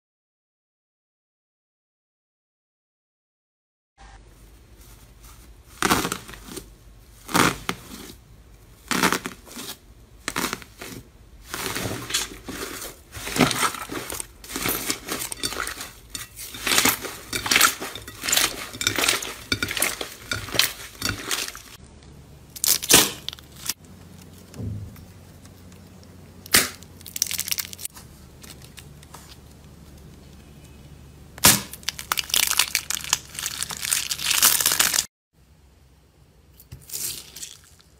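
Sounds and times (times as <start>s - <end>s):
slime crinkling and popping: 5.8s - 8.1s, 8.8s - 21.8s, 22.5s - 23.8s, 26.4s - 29.1s, 31.4s - 35.1s
slime squeezing: 8.8s - 21.8s, 36.7s - 37.9s.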